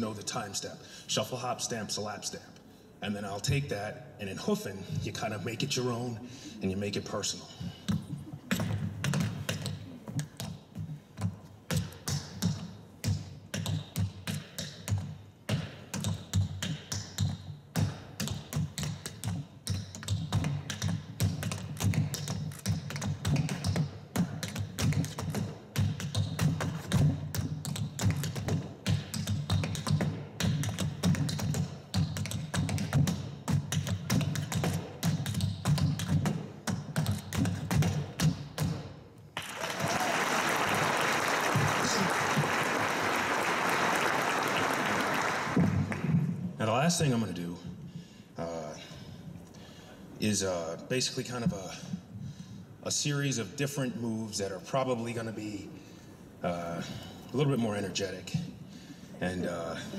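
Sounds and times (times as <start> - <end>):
tap shoes on wooden board: 7.9 - 38.9.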